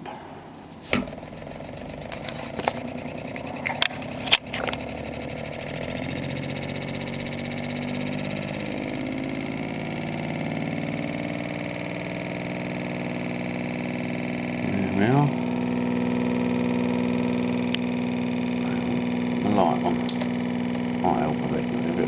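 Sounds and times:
motor humming: 0.7s - 22.0s
sharp clicks: 17.6s - 17.9s.

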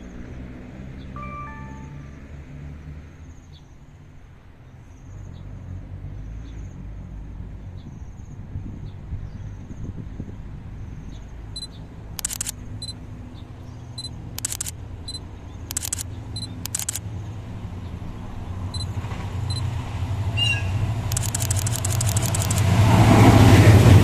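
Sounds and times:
locomotive engine rumble: 10.5s - 24.0s
short clattering bursts: 11.6s - 12.5s, 14.4s - 17.0s, 21.1s - 22.8s.

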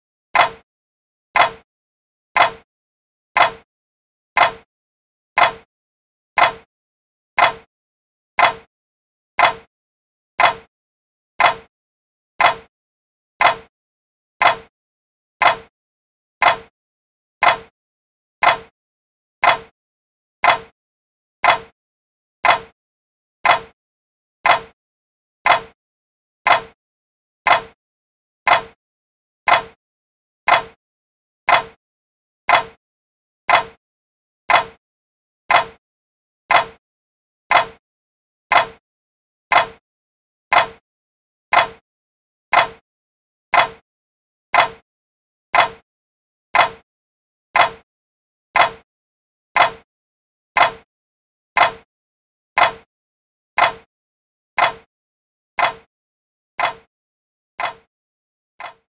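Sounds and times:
clock ticking: 0.4s - 0.6s, 1.4s - 1.6s, 2.4s - 2.6s, 3.4s - 3.6s, 4.4s - 4.7s, 5.4s - 5.7s, 6.4s - 6.7s, 7.4s - 7.7s, 8.4s - 8.7s, 9.4s - 9.7s, 10.4s - 10.7s, 11.4s - 11.7s, 12.4s - 12.7s, 13.4s - 13.7s, 14.4s - 14.7s, 15.4s - 15.7s, 16.4s - 16.7s, 17.4s - 17.7s, 18.4s - 18.7s, 19.4s - 19.7s, 20.4s - 20.7s, 21.4s - 21.7s, 22.4s - 22.8s, 23.4s - 23.8s, 24.4s - 24.8s, 25.5s - 25.8s, 26.5s - 26.8s, 27.5s - 27.8s, 28.5s - 28.8s, 29.5s - 29.8s, 30.5s - 30.8s, 31.5s - 31.8s, 32.5s - 32.8s, 33.5s - 33.8s, 34.5s - 34.8s, 35.5s - 35.8s, 36.5s - 36.8s, 37.5s - 37.8s, 38.5s - 38.8s, 39.5s - 39.8s, 40.5s - 40.8s, 41.5s - 41.8s, 42.5s - 42.8s, 43.5s - 43.8s, 44.6s - 44.8s, 45.6s - 45.8s, 46.6s - 46.8s, 47.6s - 47.8s, 48.6s - 48.8s, 49.6s - 49.9s, 50.6s - 50.9s, 51.6s - 51.9s, 52.6s - 52.9s, 53.6s - 53.9s, 54.6s - 54.9s, 55.6s - 55.9s, 56.6s - 56.9s, 57.6s - 57.9s, 58.6s - 58.9s.

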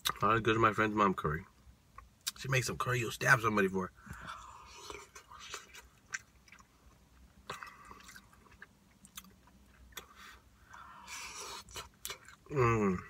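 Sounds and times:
person chewing food: 4.1s - 12.5s.

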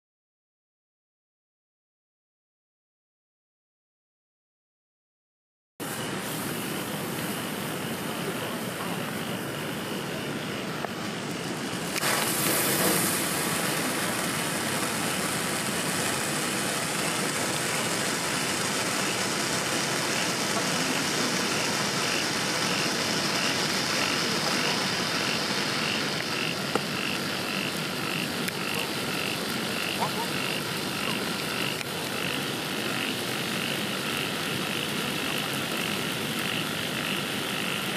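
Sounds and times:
firework hissing: 5.8s - 37.9s.

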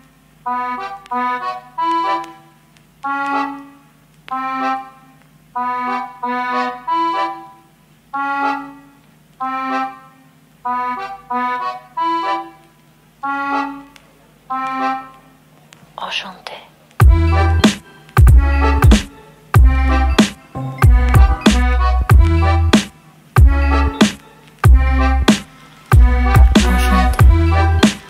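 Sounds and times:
struck pitched notes melody: 17.0s - 28.0s.

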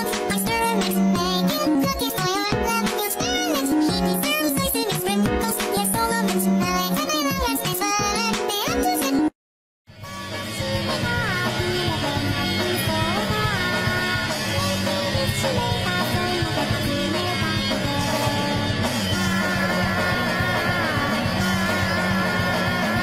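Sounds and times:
rock song with singing: 10.2s - 23.0s.

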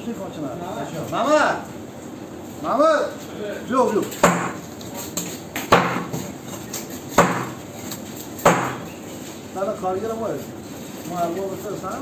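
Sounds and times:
knife chopping on wooden block: 4.2s - 4.6s, 5.6s - 6.3s, 7.1s - 7.7s, 8.4s - 8.9s.

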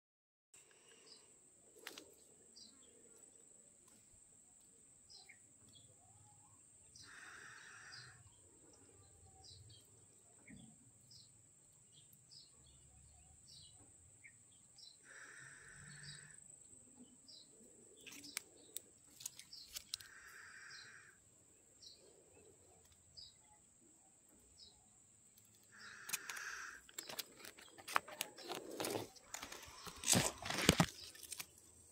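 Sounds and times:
birds chirping: 0.6s - 3.7s, 4.5s - 31.9s
insect drone: 6.8s - 9.8s, 14.5s - 23.6s, 24.5s - 31.9s
clicks and rustles: 18.0s - 20.1s, 25.3s - 31.7s.

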